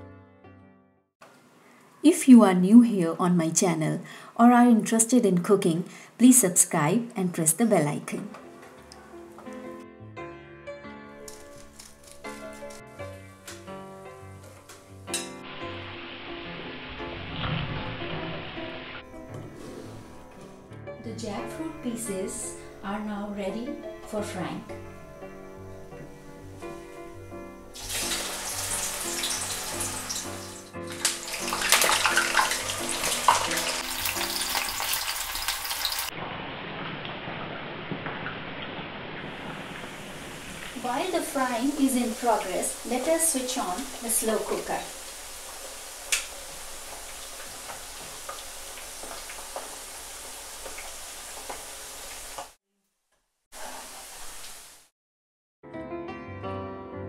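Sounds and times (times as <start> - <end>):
background music melody: 2.0 - 17.2, 18.2 - 36.0, 40.8 - 44.9
oil sizzling and crackling: 11.2 - 20.1, 25.2 - 52.6, 53.6 - 54.9.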